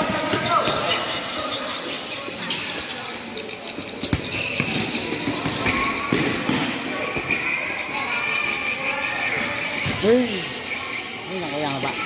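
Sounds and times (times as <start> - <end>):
background noise: 0.0 - 12.0
ball kicked and bouncing: 4.0 - 6.8.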